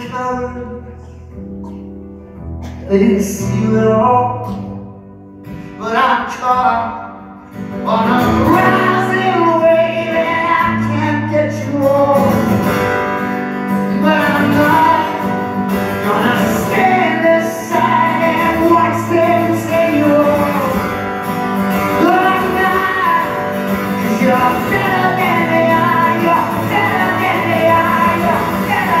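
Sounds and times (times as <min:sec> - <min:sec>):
acoustic guitar strumming: 0:00.0 - 0:29.0
person singing long notes: 0:21.9 - 0:29.0.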